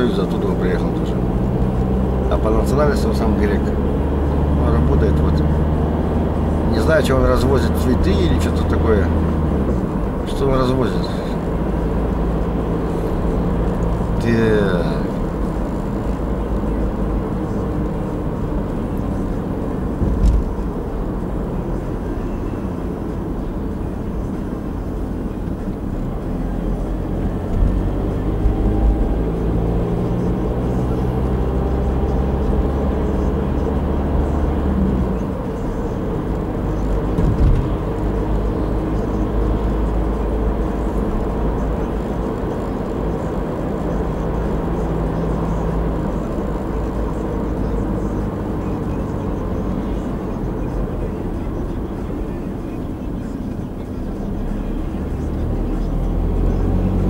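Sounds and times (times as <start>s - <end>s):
car engine hum: 0.0s - 57.0s
tyre and road noise: 0.0s - 57.0s.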